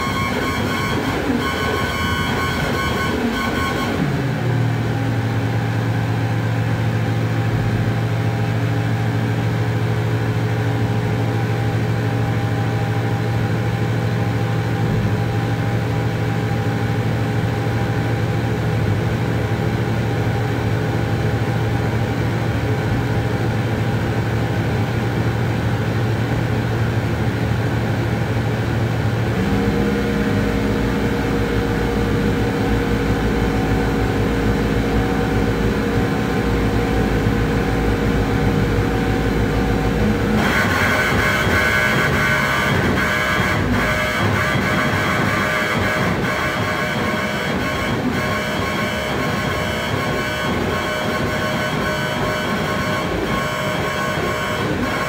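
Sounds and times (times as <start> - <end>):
synthesizer electronic noise: 0.0 - 4.9, 29.2 - 55.0.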